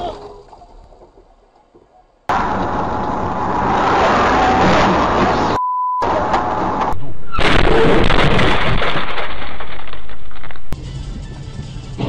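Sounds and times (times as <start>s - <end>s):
distorted road and engine noise: 2.2s - 8.4s, 10.7s - 12.0s
censor bleep: 5.5s - 6.1s.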